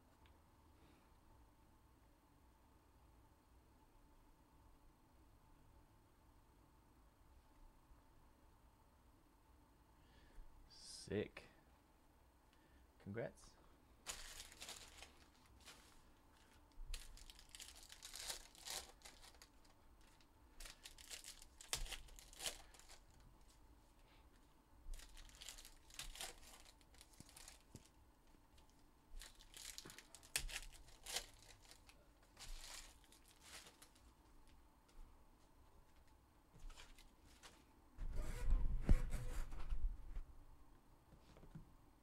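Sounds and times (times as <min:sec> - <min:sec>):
wrapper crinkling: 0:14.0 - 0:23.6, 0:24.9 - 0:34.6, 0:36.0 - 0:37.6
card pack wrappers tearing: 0:14.1 - 0:23.2, 0:24.9 - 0:27.9, 0:29.2 - 0:34.1.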